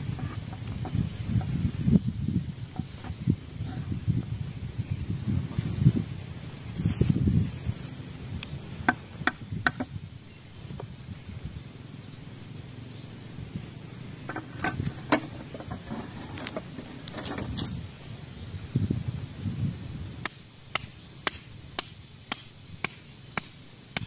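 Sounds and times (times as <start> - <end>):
bird chirping: 0.0 - 6.1, 7.6 - 18.6
wooden knocks and taps: 8.8 - 10.0.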